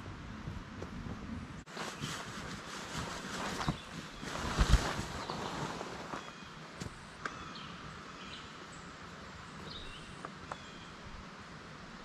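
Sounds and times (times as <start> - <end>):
steady outdoor hiss: 0.0 - 12.0
small birds chirping: 1.7 - 11.0.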